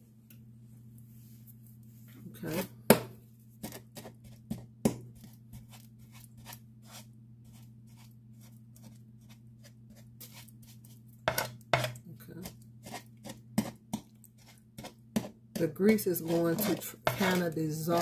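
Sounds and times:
steady low hum: 0:00.0 - 0:18.0
wooden spoon scraping a pan: 0:08.8 - 0:18.0.

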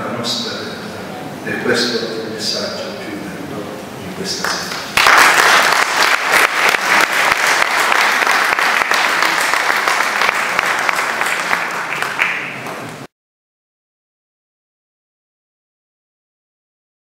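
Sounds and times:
audience applauding: 0:04.4 - 0:13.1.

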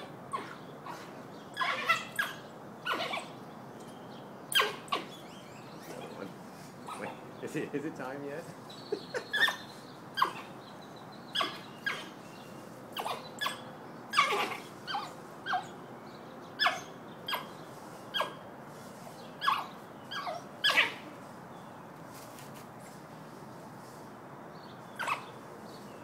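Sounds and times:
wild dogs squeaking and twittering: 0:00.0 - 0:07.4, 0:08.6 - 0:15.8, 0:16.5 - 0:18.4, 0:19.2 - 0:21.2, 0:24.8 - 0:25.8.

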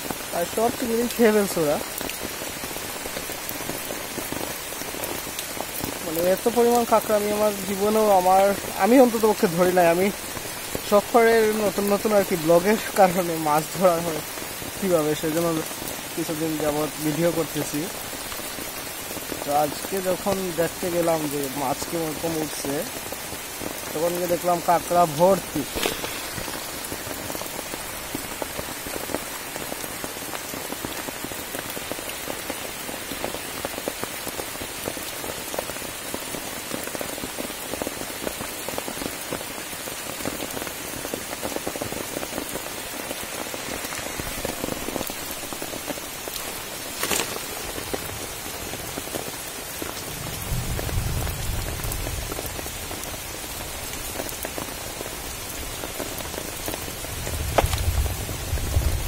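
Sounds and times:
rain on wet leaves: 0:00.0 - 0:59.0.

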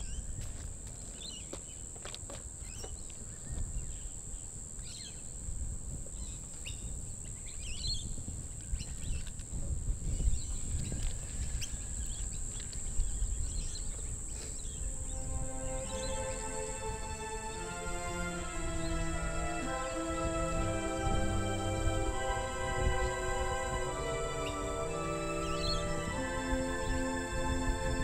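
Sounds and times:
birds chirping: 0:11.5 - 0:28.0.

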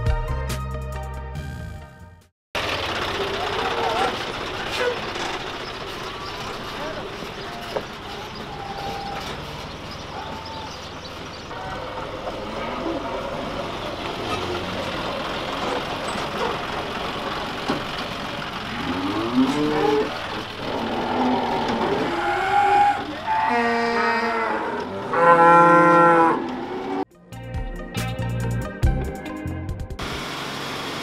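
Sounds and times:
cows mooing: 0:11.4 - 0:13.5, 0:18.7 - 0:27.0.

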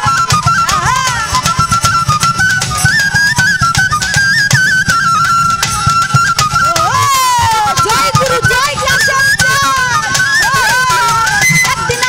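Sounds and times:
high melody instrument: 0:00.0 - 0:12.0
steady drum beat: 0:00.0 - 0:12.0.

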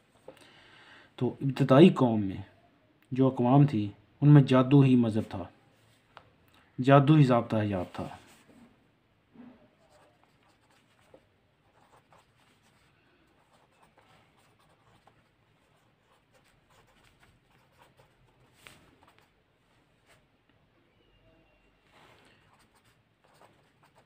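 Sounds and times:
pen writing on paper: 0:09.8 - 0:18.4, 0:22.5 - 0:24.0.

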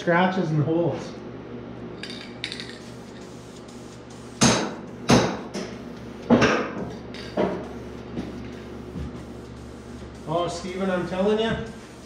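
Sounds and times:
aerosol can spraying: 0:02.7 - 0:06.3, 0:07.4 - 0:12.0.

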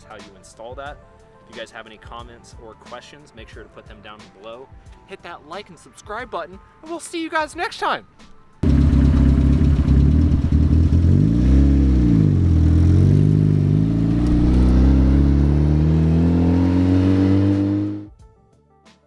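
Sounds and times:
car engine revving and accelerating: 0:08.8 - 0:18.1.

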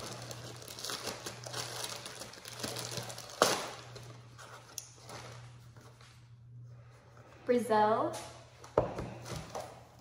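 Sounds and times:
packaging rustling and crinkling: 0:00.0 - 0:06.2.

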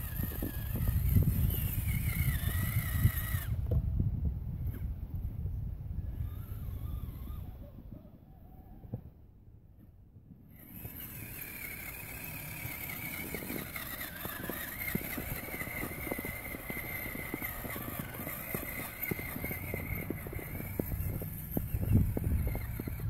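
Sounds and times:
electric motor whining: 0:00.0 - 0:03.8, 0:06.0 - 0:07.6, 0:10.5 - 0:23.0
crunching snow: 0:10.6 - 0:23.0.

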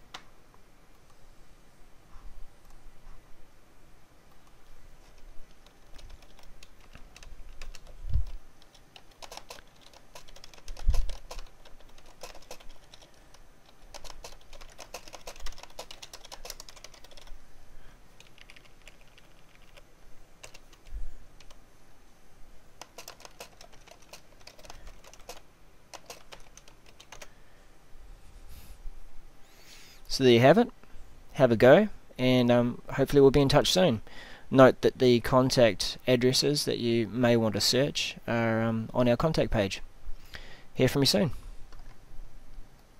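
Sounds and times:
typing on computer keyboard: 0:05.4 - 0:17.4, 0:18.2 - 0:21.6, 0:22.8 - 0:27.3.

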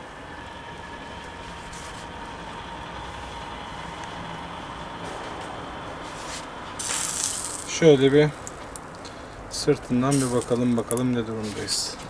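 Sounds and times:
faint motor hum: 0:00.0 - 0:12.0
grill hiss: 0:01.4 - 0:09.1, 0:10.0 - 0:10.8.

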